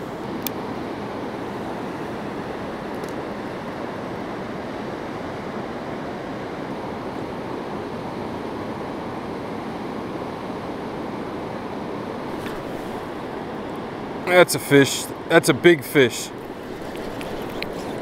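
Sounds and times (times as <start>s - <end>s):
river rushing: 12.2s - 18.0s.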